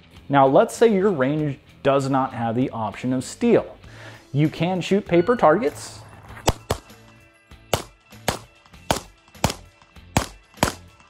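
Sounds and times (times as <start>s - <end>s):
background music: 0.0s - 11.0s
pistol shots: 6.4s - 7.0s, 7.7s - 11.0s.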